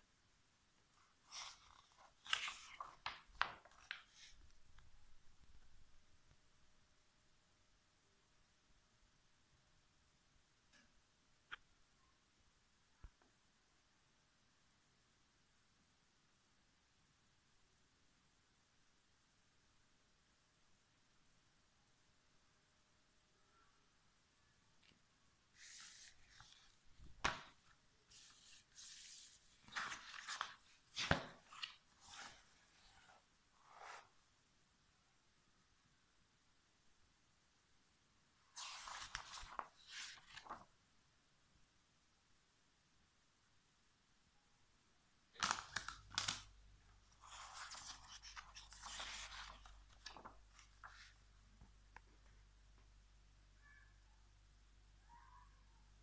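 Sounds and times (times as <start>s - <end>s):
magazine pages rustling: 1.0s - 5.7s, 25.6s - 34.0s, 38.6s - 40.7s, 45.4s - 46.5s, 47.1s - 51.2s
light page flicks: 45.4s - 46.5s.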